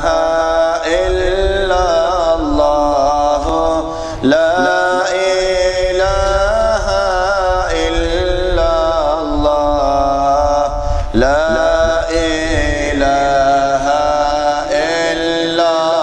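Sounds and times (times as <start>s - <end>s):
man chanting melodically: 0.0s - 16.0s.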